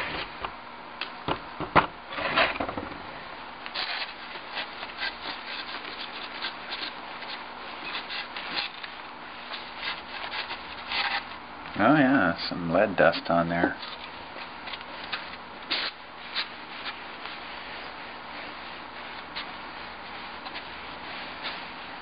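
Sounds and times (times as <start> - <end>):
scratchy rubbing strokes: 15.1 - 22.0.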